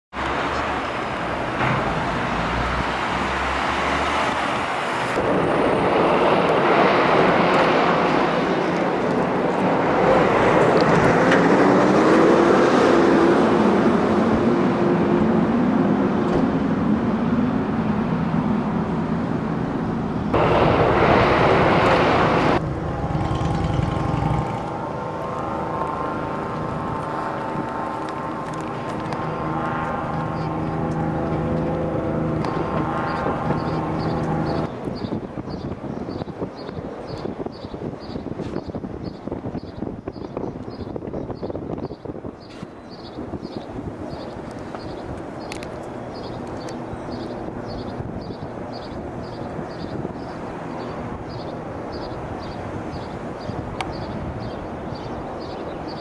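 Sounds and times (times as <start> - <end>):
vehicles passing: 0.1 - 37.4, 42.2 - 56.0
engine rising in pitch: 20.4 - 27.6, 28.4 - 34.7.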